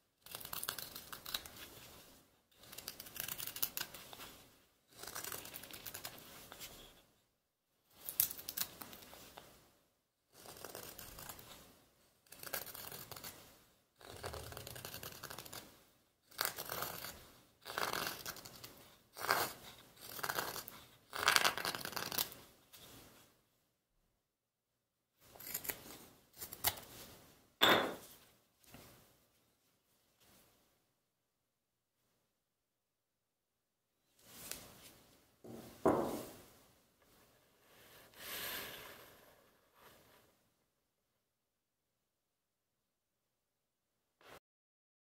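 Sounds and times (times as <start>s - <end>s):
knife shaving wood: 0.2s - 1.9s, 2.6s - 4.2s, 4.9s - 7.0s, 10.3s - 11.6s, 14.0s - 15.7s, 16.3s - 22.4s.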